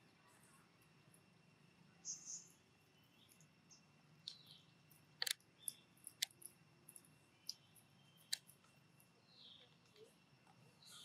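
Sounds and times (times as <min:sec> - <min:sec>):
monkey cracking peanuts: 0:04.3 - 0:08.6.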